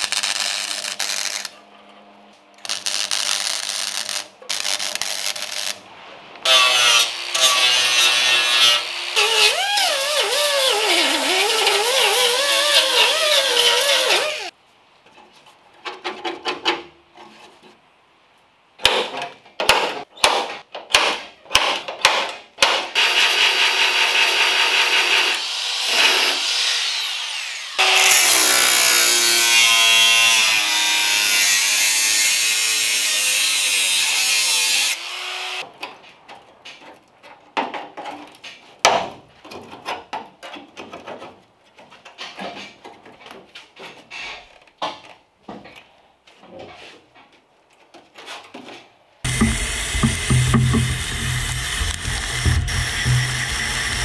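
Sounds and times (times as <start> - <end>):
air die grinder whining: 49.3 - 54.0.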